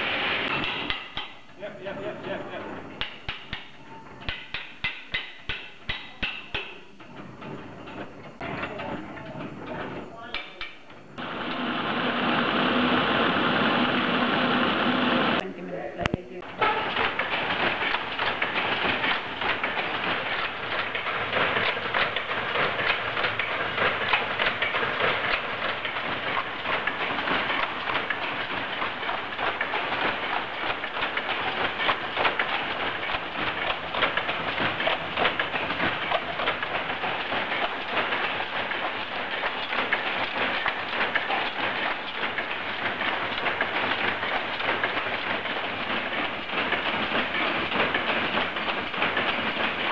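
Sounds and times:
power loom clattering: 0.0 - 15.4, 16.4 - 49.9.

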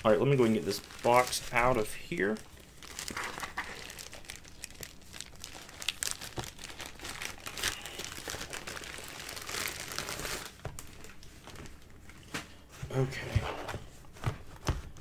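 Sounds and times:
plastic mailer bag crinkling: 0.0 - 11.8.

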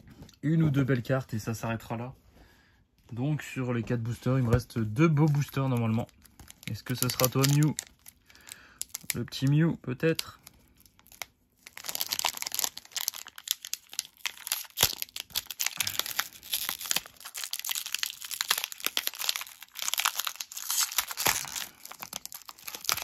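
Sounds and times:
foil wrapper crinkling: 5.2 - 9.4, 10.0 - 23.0.

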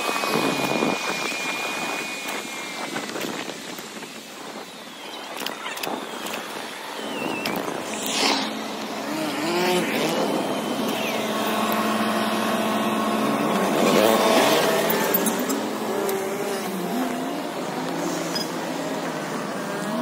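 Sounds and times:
car engines passing: 6.5 - 20.0.

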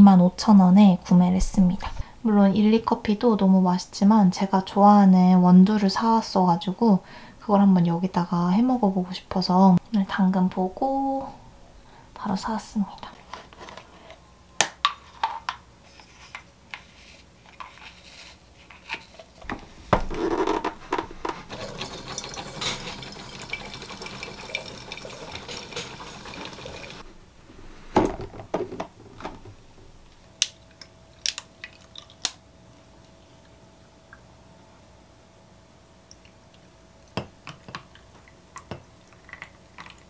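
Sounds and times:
espresso machine running: 21.5 - 27.0.

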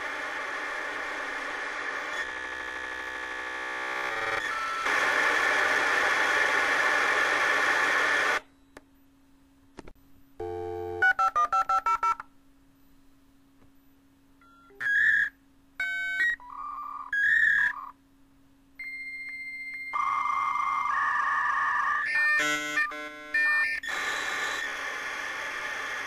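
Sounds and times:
dial tone: 10.4 - 12.2
electronic tone bursts: 18.8 - 26.0.

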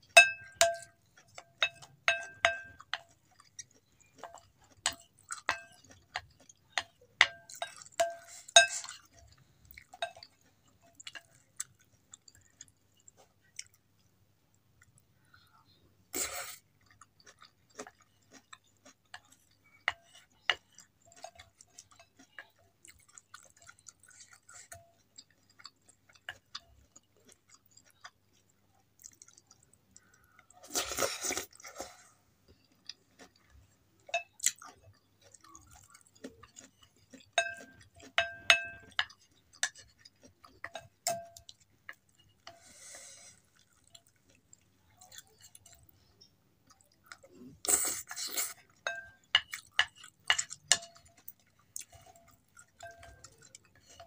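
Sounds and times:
utensils clinking on glass bowl: 0.1 - 3.1, 4.2 - 9.4, 36.9 - 42.6, 48.7 - 54.0
chewing and slurping noodles: 0.6 - 13.8, 16.2 - 54.0.

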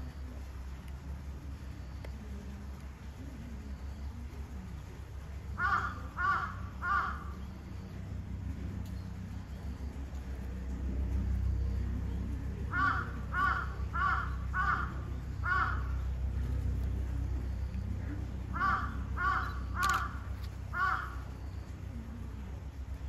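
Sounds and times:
low rumble: 0.0 - 23.0
bird harsh calls: 5.6 - 7.6, 12.7 - 16.1, 18.5 - 21.6.

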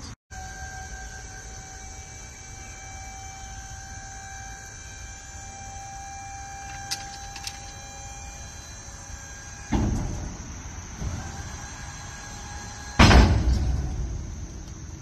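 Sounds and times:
hydraulic pump whining: 0.3 - 15.0
loud steel clunk: 9.6 - 11.3, 12.9 - 14.7.

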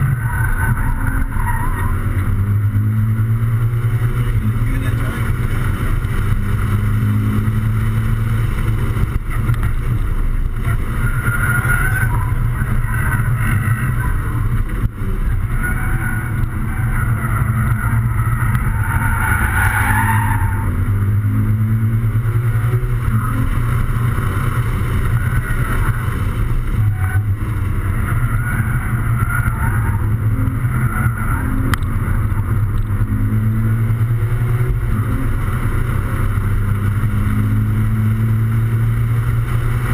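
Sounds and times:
car engine pulling hard: 0.0 - 39.9
road and wind noise: 0.0 - 39.9.

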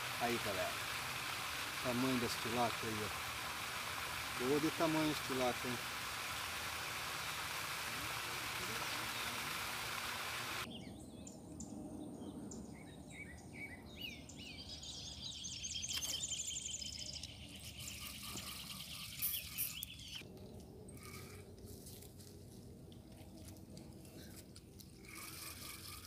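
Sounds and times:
rough hiss: 0.0 - 10.7
thin high whine: 0.0 - 10.7
birds chirping and singing: 10.6 - 20.2.

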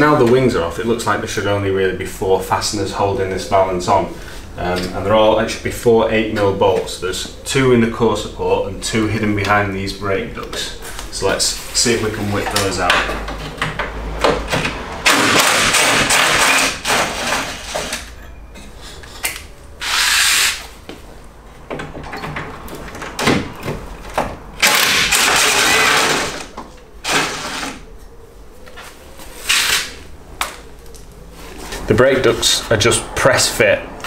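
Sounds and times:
power tool running: 19.8 - 20.6, 24.6 - 27.8.

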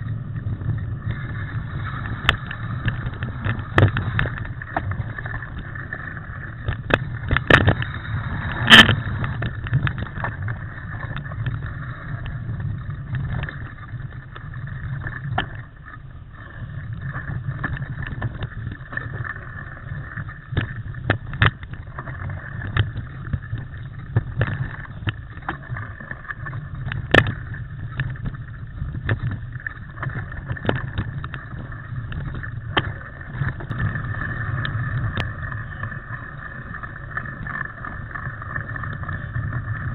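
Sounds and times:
bike tyres rumbling: 0.0 - 39.9
wind on microphone: 0.0 - 39.9.

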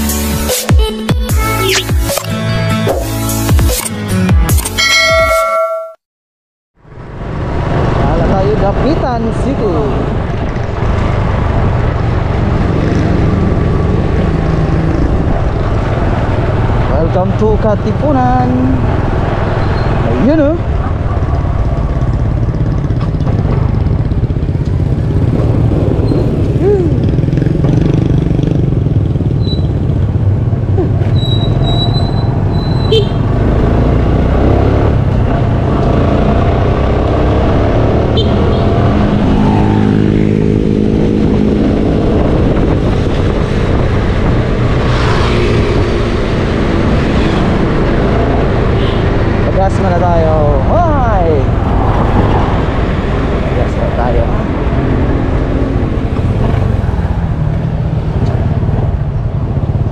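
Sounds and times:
motorcycle engine rumbling: 9.9 - 59.9
wind noise on microphone: 18.8 - 33.4, 34.9 - 49.5, 50.6 - 59.9.

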